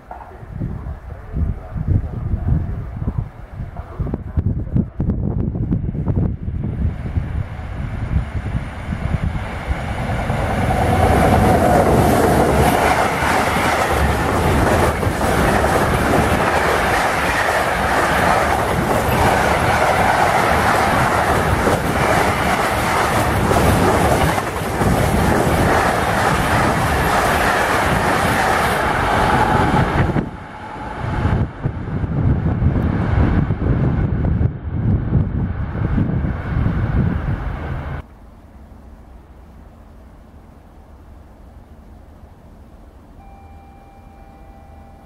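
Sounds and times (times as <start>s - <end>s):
train wheels rushing on rails: 5.9s - 38.0s.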